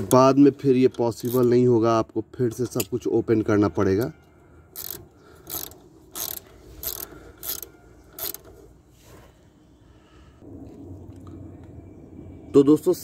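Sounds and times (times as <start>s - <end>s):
ratchet wrench rasping: 1.0s - 1.6s, 4.0s - 8.6s.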